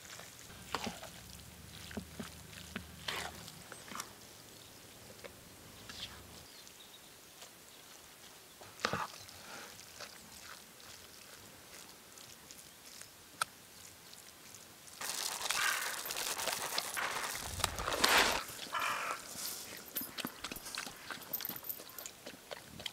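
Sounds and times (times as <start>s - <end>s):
wooden spoon scraping a bowl: 0.5s - 4.0s, 15.6s - 19.9s
kibble pouring into a steel bowl: 15.0s - 18.5s.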